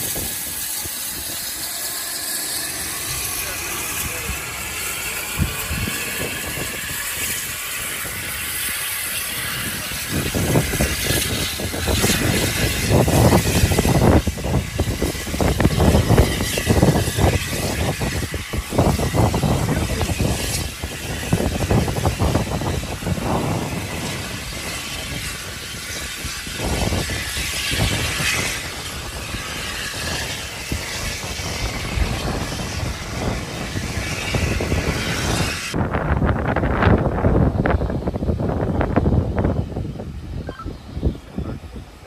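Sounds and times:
steam locomotive exhaust beats: 0.0 - 42.0.

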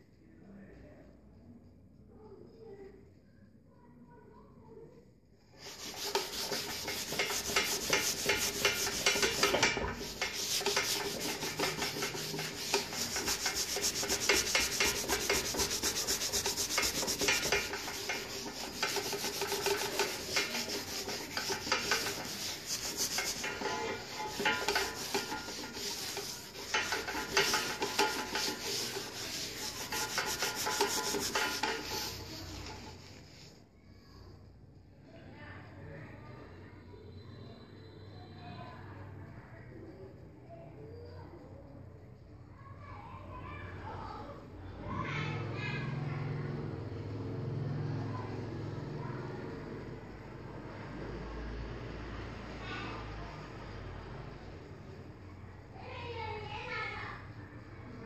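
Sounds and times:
abrasive pad scratching metal: 5.6 - 33.1.

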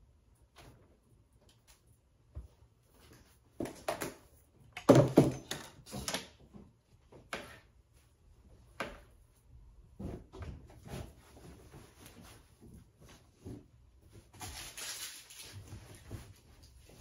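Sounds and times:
bedding rustling: 9.4 - 17.0.

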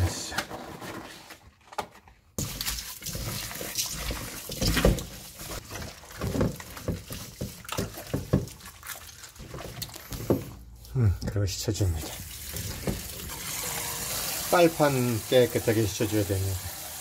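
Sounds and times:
wet squelching and rubbing: 2.4 - 10.9.

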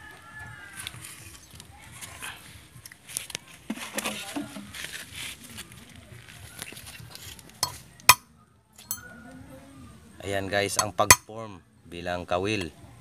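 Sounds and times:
metal wire clinks and taps: 7.6 - 9.1, 10.8 - 11.3.

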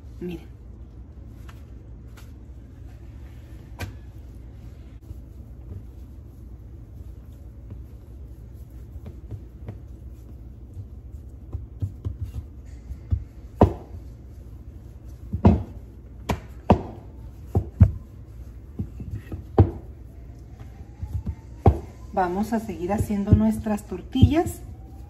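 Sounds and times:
soft patting of dough: 0.0 - 25.0
rolling pin knocking on counter: 15.3 - 18.0.

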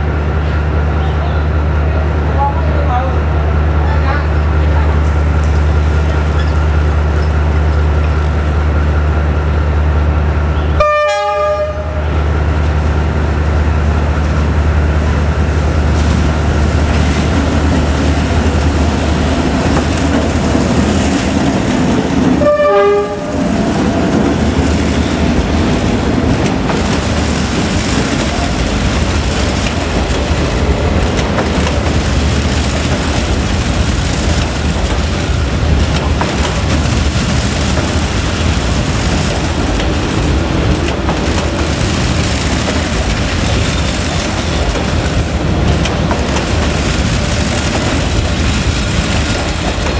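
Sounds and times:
diesel locomotive engine drone: 0.0 - 49.9
train wheels on rails: 0.0 - 49.9
train horn toots: 10.6 - 12.2, 22.4 - 23.5.

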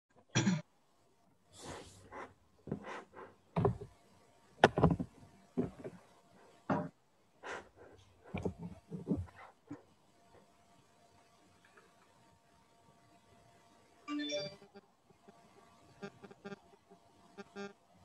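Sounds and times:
irregular knocks: 4.6 - 5.9.

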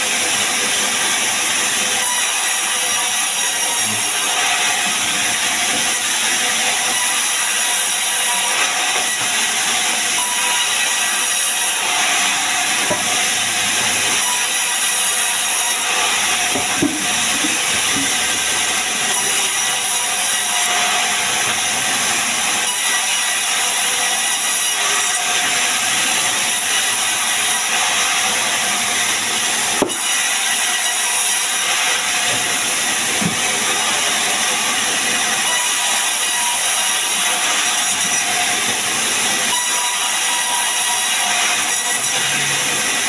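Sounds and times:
band saw cutting log: 0.0 - 43.0.

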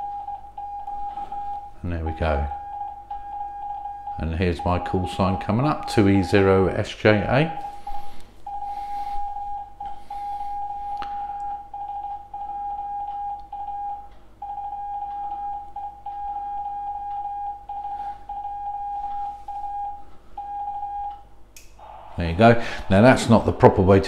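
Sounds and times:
morse code beeping: 0.0 - 6.8, 7.5 - 21.2.

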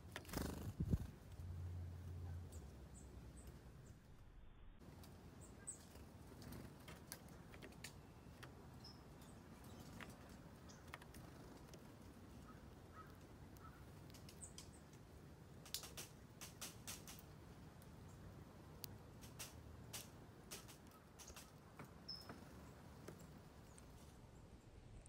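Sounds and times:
faint clicks: 9.6 - 11.8, 12.4 - 17.9
high bird chirps: 20.9 - 22.4.

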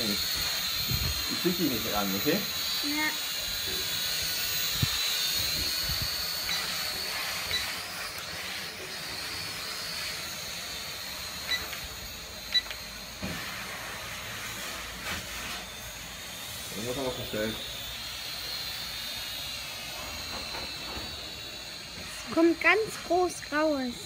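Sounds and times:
drone propellers whining: 0.0 - 15.0, 15.6 - 24.0
steady hiss: 0.0 - 24.0.

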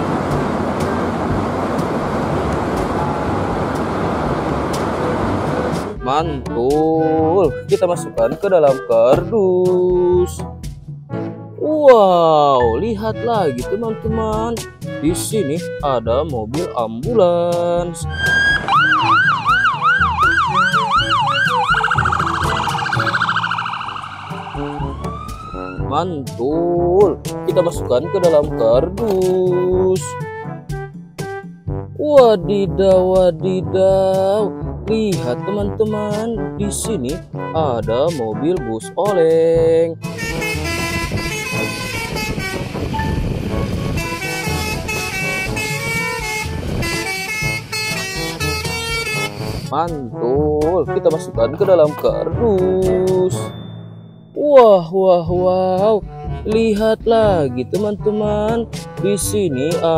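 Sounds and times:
coach engine rumble: 0.0 - 6.1, 40.1 - 49.7
melodic multi-tone air horn: 18.0 - 25.9, 40.0 - 51.4
ambulance siren: 18.1 - 25.9.

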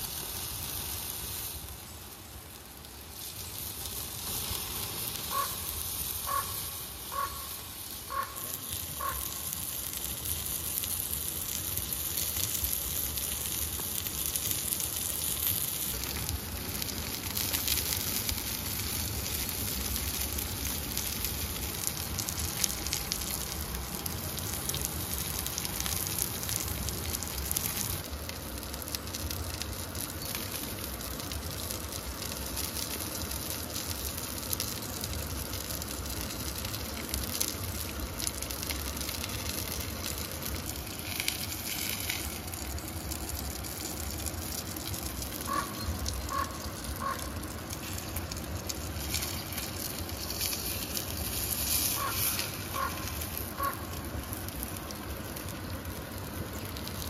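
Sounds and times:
burger patties sizzling: 0.0 - 57.0
campfire crackling: 0.0 - 57.0.

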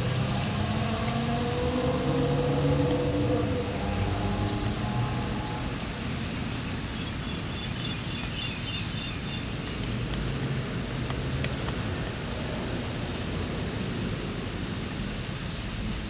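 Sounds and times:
low rumble and hiss: 0.0 - 16.0
bird chirping: 7.0 - 9.5.

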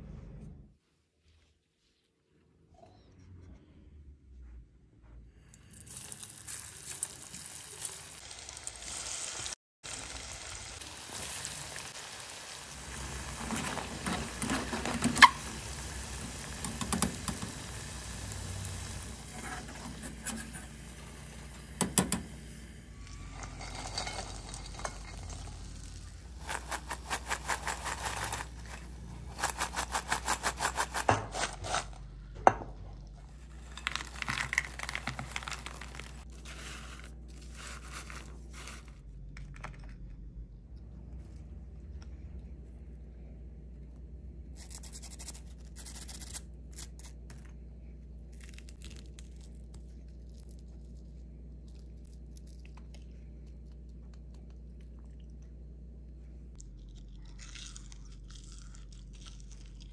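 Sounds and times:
food sizzling in hot oil: 5.9 - 21.6, 22.3 - 26.5
wire strainer clinking and scraping: 23.0 - 28.8.

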